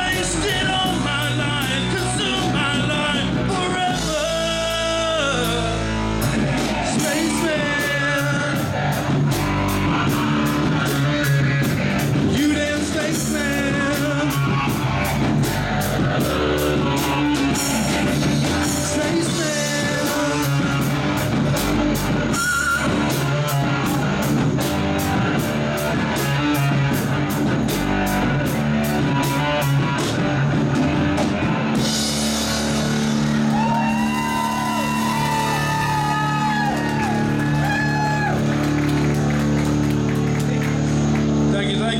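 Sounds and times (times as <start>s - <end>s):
man singing: 0.0s - 15.2s, 16.0s - 24.4s
drum kit beat: 0.0s - 41.5s
bass guitar: 0.0s - 41.9s
electric guitar: 0.0s - 41.9s.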